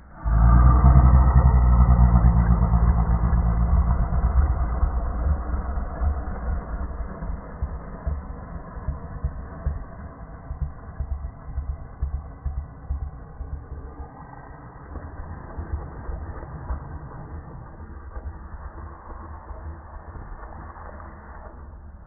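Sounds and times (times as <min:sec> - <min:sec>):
slowed dog growl: 0:00.0 - 0:07.6.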